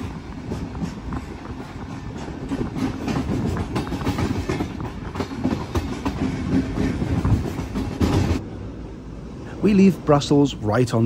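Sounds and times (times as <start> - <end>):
train wheels clattering over rail joints: 0.0 - 8.4.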